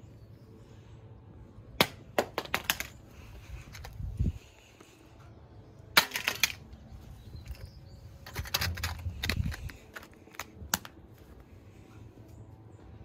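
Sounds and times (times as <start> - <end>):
phone cracking on stone: 6.0 - 6.6.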